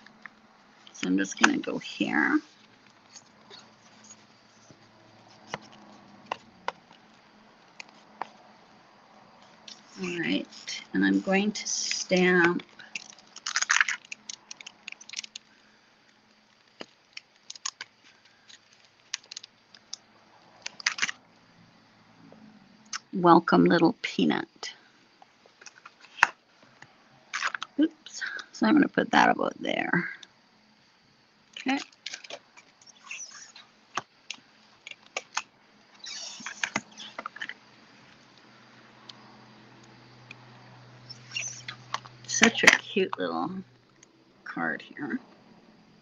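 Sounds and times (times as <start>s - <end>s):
plastic sheet clicks and crinkles: 11.8s - 20.0s, 20.6s - 21.2s, 25.4s - 27.8s, 31.6s - 37.6s.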